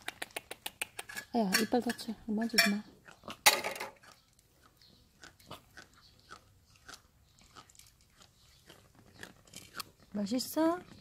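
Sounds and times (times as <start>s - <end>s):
cats crunching dry kibble: 3.0s - 11.0s.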